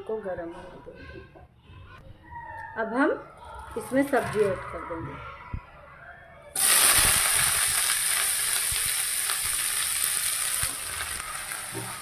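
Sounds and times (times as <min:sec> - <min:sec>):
vegetables sizzling in hot oil: 0:06.6 - 0:12.0.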